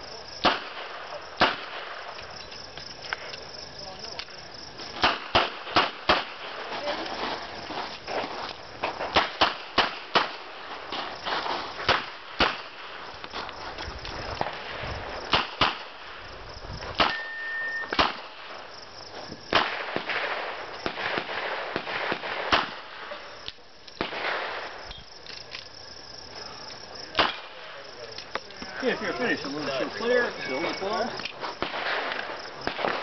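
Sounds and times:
revolver gunshots: 0:05.0 - 0:06.6, 0:17.0 - 0:18.6, 0:19.5 - 0:23.2, 0:24.0 - 0:24.7, 0:31.6 - 0:33.0.

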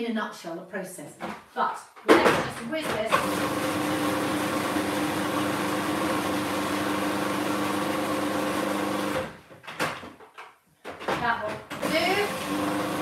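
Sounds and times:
blender running: 0:03.1 - 0:09.4, 0:11.8 - 0:13.0.

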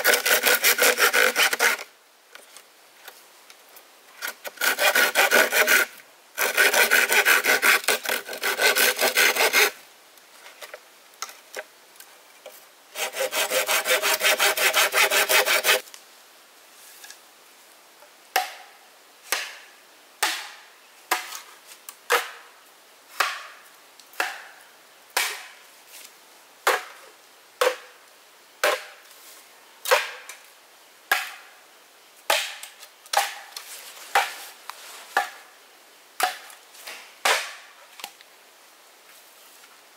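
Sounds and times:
saw cutting wood: 0:00.0 - 0:01.9, 0:04.2 - 0:09.8, 0:12.9 - 0:15.8
chopping strikes into wood: 0:18.3 - 0:18.6, 0:23.2 - 0:23.5, 0:24.2 - 0:24.5, 0:29.9 - 0:30.2, 0:31.1 - 0:31.4, 0:32.3 - 0:33.4.

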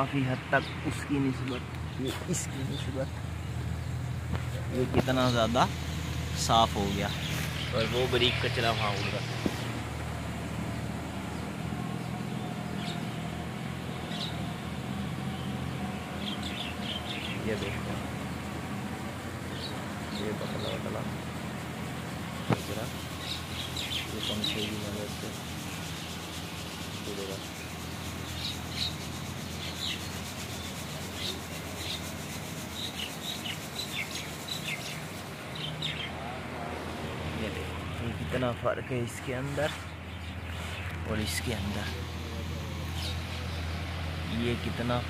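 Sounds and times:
birds chirping: 0:00.0 - 0:45.0
electric fan humming: 0:00.0 - 0:45.0
seeds pouring rushing hiss: 0:24.0 - 0:35.4.

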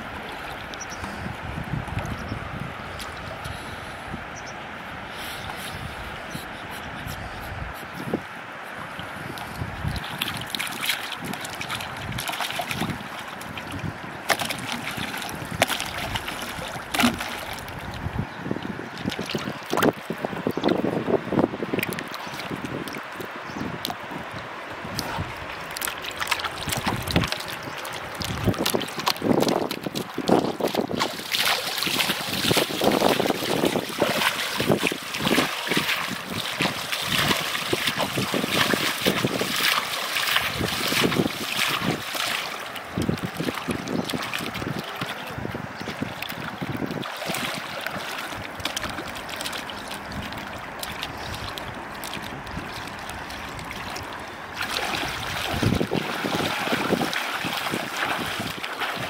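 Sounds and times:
river water splashing: 0:00.0 - 0:59.0
wind buffeting microphone: 0:00.0 - 0:59.0
splashing steps in water: 0:09.4 - 0:18.0, 0:24.9 - 0:45.3, 0:45.9 - 0:59.0.

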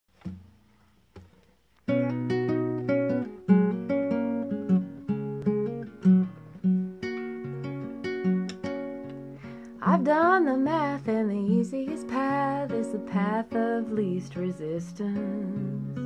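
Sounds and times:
acoustic guitar picking: 0:00.2 - 0:16.0
faint taps: 0:01.1 - 0:01.9.

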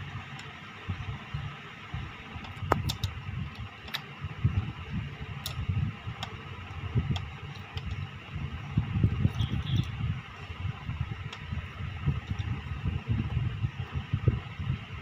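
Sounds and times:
low background rumble: 0:00.0 - 0:15.0
small plastic clicks and taps: 0:02.4 - 0:04.1.

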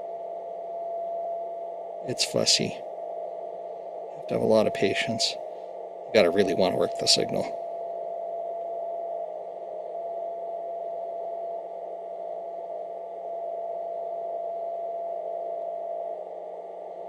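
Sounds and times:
radio band hiss: 0:02.1 - 0:02.8, 0:04.2 - 0:05.4, 0:06.2 - 0:07.6
radio whistling tone: 0:02.1 - 0:02.8.

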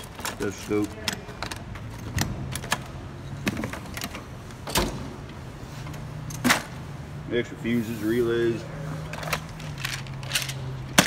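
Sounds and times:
tools clattering in metal drawer: 0:00.0 - 0:05.0, 0:09.0 - 0:11.0.

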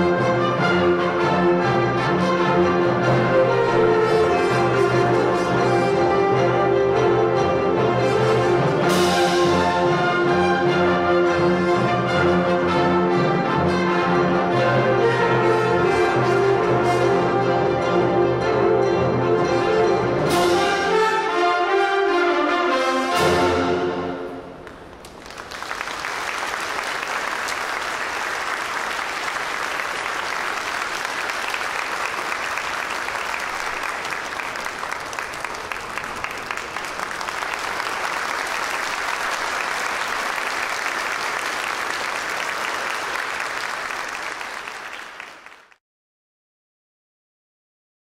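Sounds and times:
audience applauding: 0:24.6 - 0:45.8.

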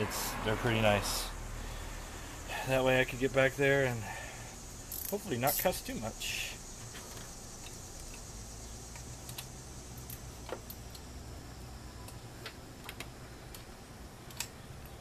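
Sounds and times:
ratchet wrench clicking: 0:04.9 - 0:05.7.

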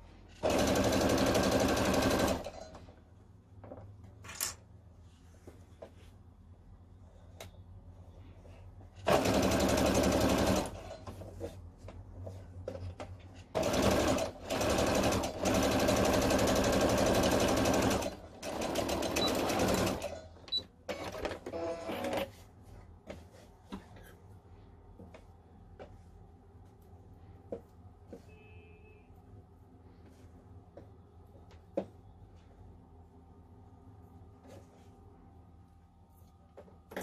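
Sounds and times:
sewing machine stitching: 0:00.3 - 0:02.8, 0:09.0 - 0:11.2, 0:13.4 - 0:20.3.

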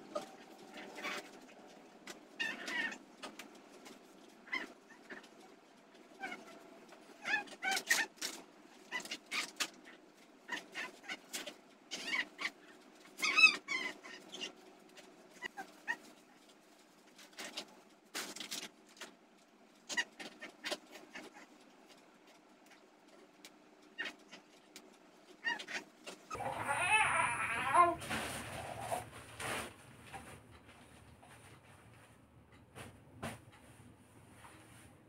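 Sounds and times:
baby crying: 0:26.3 - 0:29.0.

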